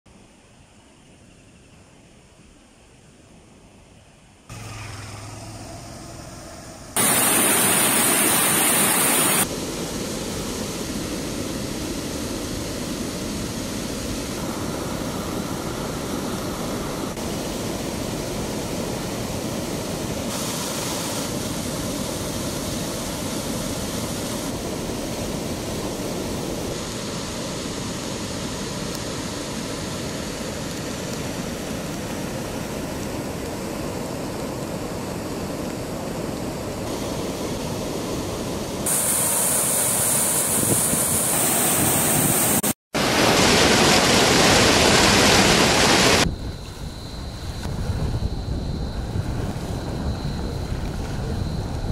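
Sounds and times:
floodwater rushing: 0:04.5 - 0:34.9, 0:37.7 - 0:46.3
loud hiss: 0:04.5 - 0:50.1.

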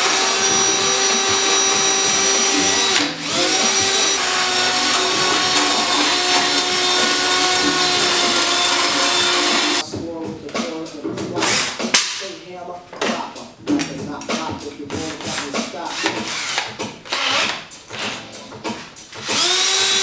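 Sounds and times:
cordless drill whining: 0:00.0 - 0:09.8, 0:15.9 - 0:17.6, 0:19.1 - 0:20.0
rasping on sheet metal: 0:00.0 - 0:09.8.

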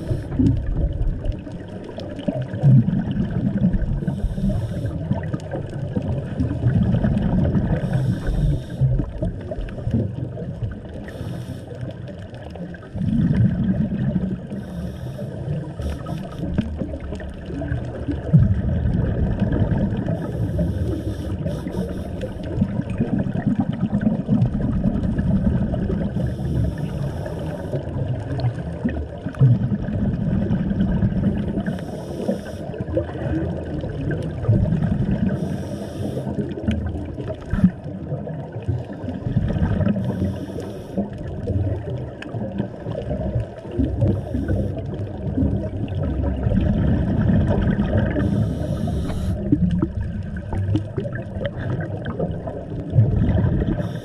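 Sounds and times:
scuba regulator hiss: 0:00.0 - 0:00.4, 0:04.1 - 0:05.1, 0:07.8 - 0:08.8, 0:11.1 - 0:11.8, 0:14.6 - 0:16.5, 0:20.2 - 0:22.5, 0:26.2 - 0:27.8, 0:31.7 - 0:32.7, 0:35.3 - 0:36.4, 0:40.0 - 0:41.0, 0:48.2 - 0:49.5, 0:53.8 - 0:54.0
bubbling exhaled air: 0:00.0 - 0:54.0.

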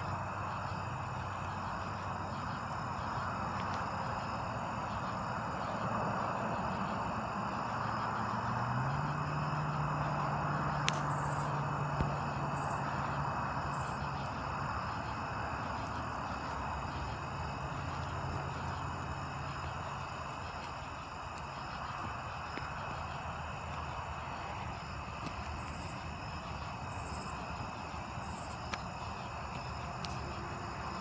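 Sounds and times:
crickets and insects trilling: 0:00.0 - 0:31.0
faint clicks: 0:10.8 - 0:11.2.

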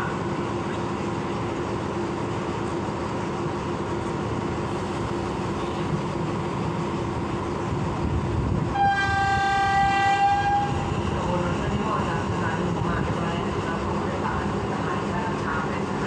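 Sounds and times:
train engine rumbling: 0:00.0 - 0:16.0
train horn: 0:08.7 - 0:10.9.

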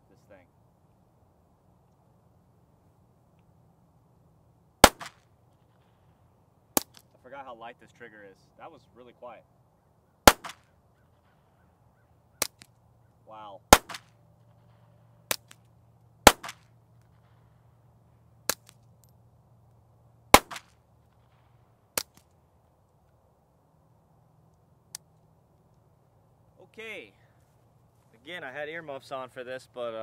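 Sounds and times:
suppressed pistol shots: 0:04.8 - 0:05.2, 0:10.2 - 0:10.7, 0:13.7 - 0:14.2, 0:16.2 - 0:16.7, 0:20.3 - 0:21.4.

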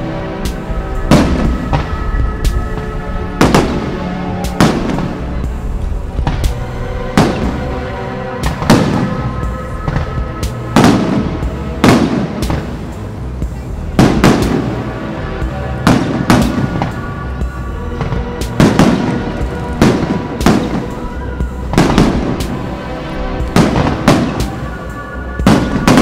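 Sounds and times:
background music: 0:00.0 - 0:26.0
fireworks bangs: 0:00.0 - 0:26.0.

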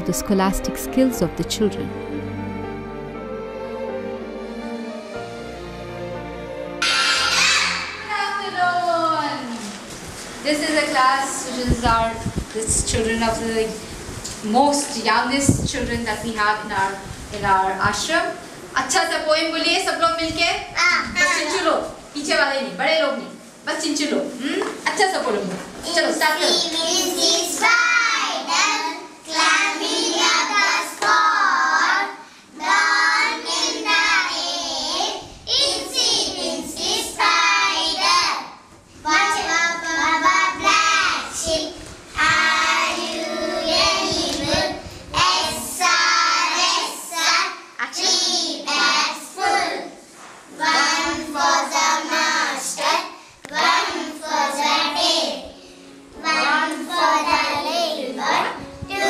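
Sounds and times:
children singing in unison: 0:06.8 - 0:08.0, 0:26.6 - 0:38.4, 0:39.2 - 0:49.9, 0:50.6 - 0:55.6.

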